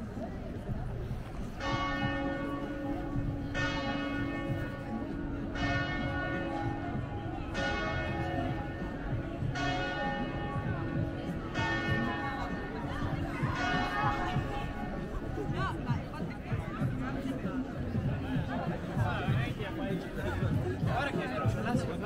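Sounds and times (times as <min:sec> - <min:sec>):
church bell tolling: 0:01.5 - 0:15.1.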